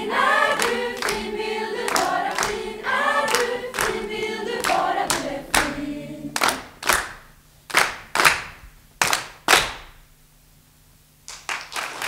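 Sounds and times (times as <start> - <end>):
women's choir singing chord: 0.0 - 7.0
hand claps echoing in hall: 0.3 - 10.0, 11.3 - 12.0.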